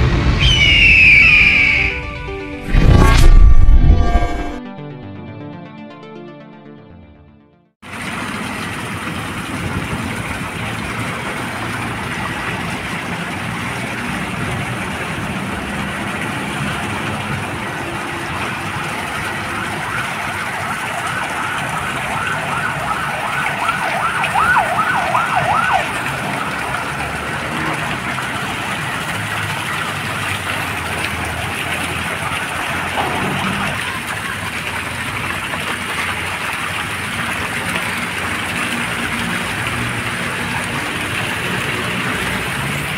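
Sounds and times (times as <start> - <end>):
fountain jets splashing: 7.8 - 42.9
emergency siren wailing: 16.8 - 29.7, 31.8 - 34.0.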